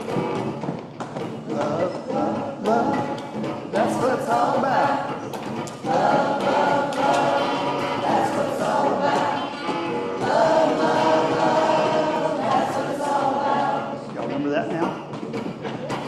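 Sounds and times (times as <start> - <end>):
strummed electric guitar: 0.0 - 16.0
group singing: 1.5 - 14.3.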